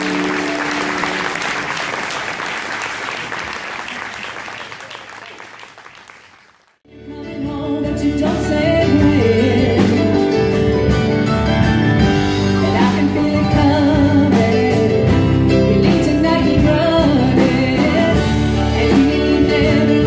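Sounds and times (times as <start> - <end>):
audience applause: 0.0 - 6.8
woman singing: 6.9 - 10.2, 12.6 - 20.0
country acoustic band: 7.4 - 20.0.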